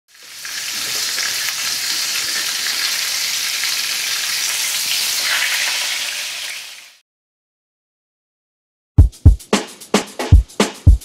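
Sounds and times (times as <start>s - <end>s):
food sizzling: 0.1s - 7.0s.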